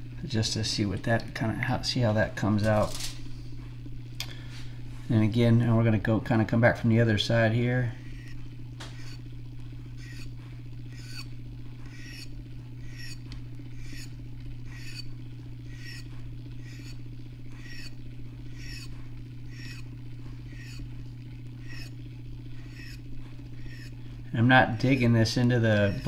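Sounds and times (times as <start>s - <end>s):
motor humming: 0.0s - 26.0s
rhythmic squeak: 10.0s - 10.3s, 10.9s - 11.3s, 11.9s - 13.2s, 13.8s - 14.1s, 14.7s - 15.1s, 15.7s - 17.0s, 17.6s - 18.0s, 18.6s - 19.9s, 20.5s - 20.9s, 21.6s - 22.0s, 22.7s - 23.0s, 25.8s - 26.0s.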